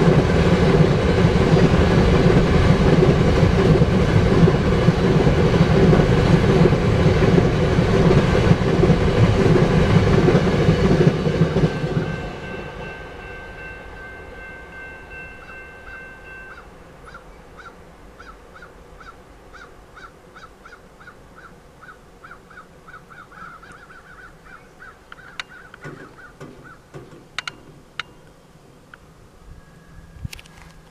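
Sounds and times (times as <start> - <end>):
train wheel clatter: 0.0 - 16.6, 25.2 - 28.4
crossing bell dinging: 9.2 - 17.5
crossing gates clicking: 25.0 - 29.0.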